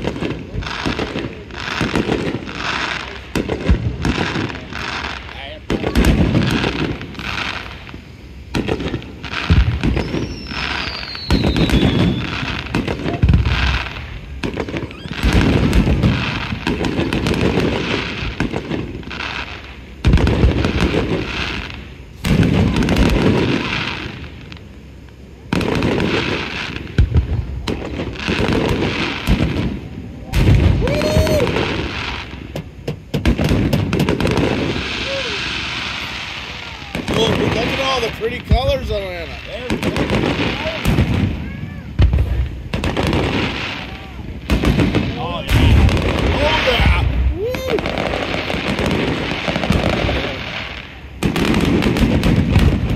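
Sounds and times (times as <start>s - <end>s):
fireworks bangs and crackling: 0.0s - 52.9s
falling whistle: 9.9s - 12.5s, 14.8s - 15.2s, 30.8s - 31.7s.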